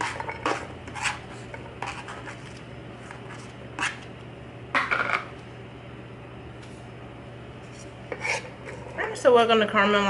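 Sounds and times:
onion scraped into frying pan: 0.0 - 4.0, 7.6 - 9.0
steady low hum: 0.0 - 10.0.

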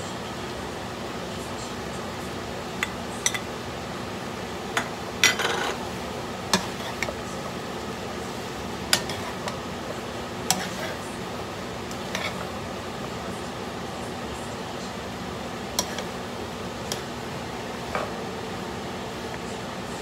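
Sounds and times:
vegetables sizzling: 2.5 - 20.0
metal spoon scraping a wok: 5.2 - 5.8, 6.6 - 7.1, 10.5 - 11.0, 11.9 - 12.5.

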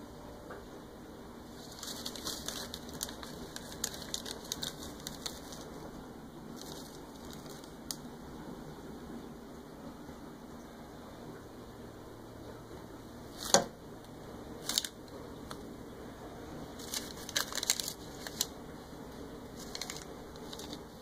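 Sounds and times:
fabric bag rustling: 1.5 - 5.8.

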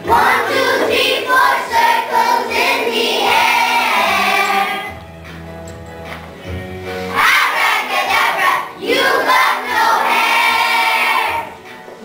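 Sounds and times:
children singing in unison: 0.0 - 5.0, 7.1 - 11.6.

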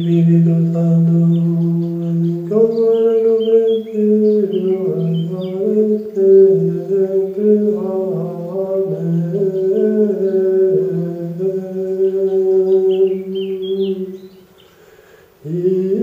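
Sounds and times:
faint bird chirps: 0.0 - 6.2, 11.9 - 14.9
person chanting in long notes: 0.0 - 14.4, 15.4 - 16.0.

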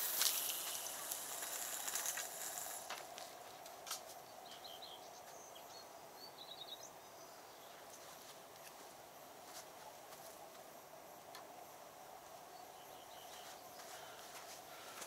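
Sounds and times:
fishing line hissing off reel: 0.0 - 3.1.

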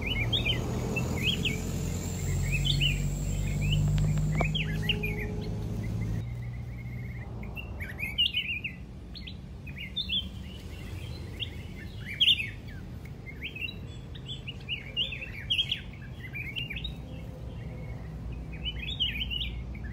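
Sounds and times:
birds chirping sharply: 0.0 - 19.9.

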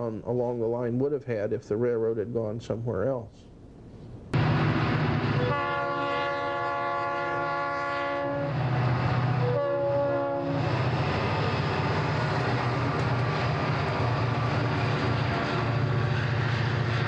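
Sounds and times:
rail noise: 3.7 - 17.0
train air horn blasts: 5.3 - 10.8
diesel engine rumble: 10.3 - 17.0.

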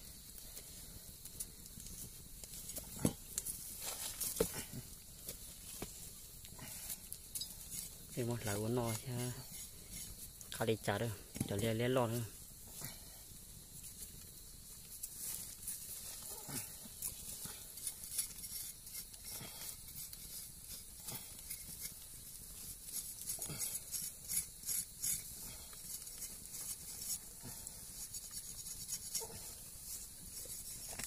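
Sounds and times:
wood fire crackling and popping: 0.0 - 31.0
knife scraping fur off carcass: 16.3 - 22.0, 22.6 - 31.0.

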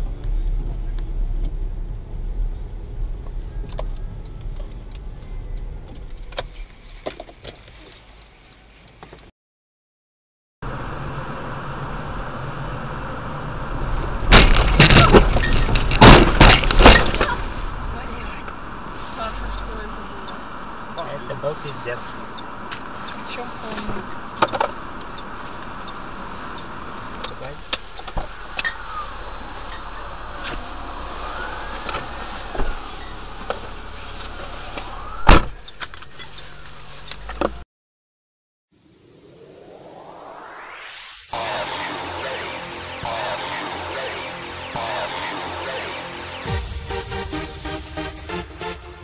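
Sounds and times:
car road and engine noise: 0.0 - 9.3, 10.6 - 37.6
faint high whine: 28.4 - 35.4, 38.8 - 46.6.

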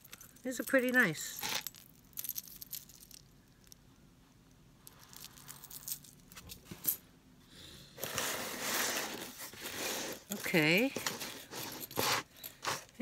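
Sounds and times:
metal chain and charms clinking: 0.0 - 3.8, 4.8 - 7.0, 10.3 - 13.0.

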